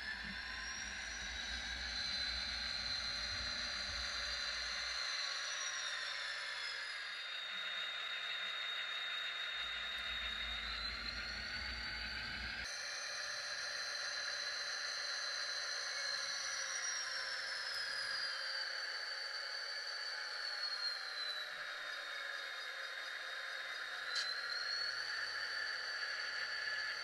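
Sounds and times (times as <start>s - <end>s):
small electric motor whining: 0.0s - 27.0s.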